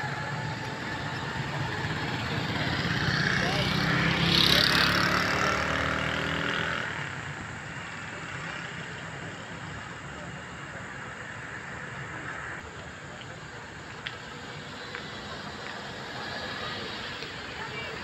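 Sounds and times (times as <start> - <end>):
road hum: 0.0 - 18.0.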